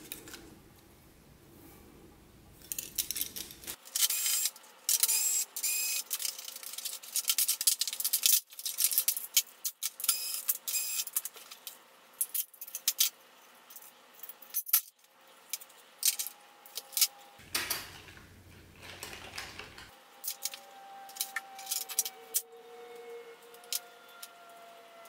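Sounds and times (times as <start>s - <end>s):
plastic parts clicking and clattering: 2.6s - 22.4s
rubbing and handling noise: 16.8s - 22.4s.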